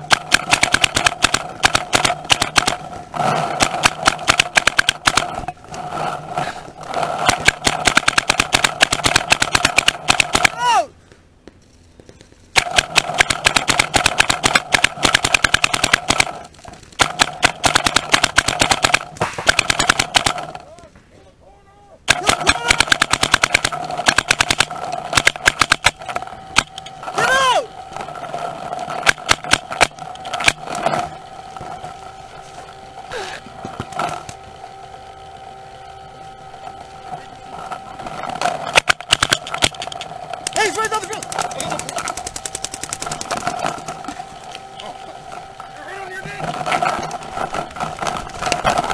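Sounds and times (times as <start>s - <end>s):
paintball marker firing: 0.0s - 5.5s, 7.0s - 10.6s, 12.5s - 20.6s, 22.1s - 27.0s, 28.0s - 31.8s, 38.4s - 44.0s
steady faint hum: 0.0s - 48.9s.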